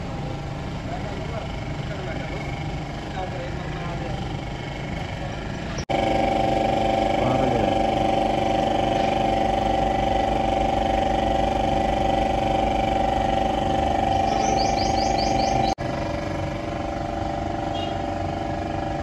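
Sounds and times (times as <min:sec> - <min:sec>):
car engine idling: 0:00.0 - 0:19.0
steady hum: 0:00.0 - 0:19.0.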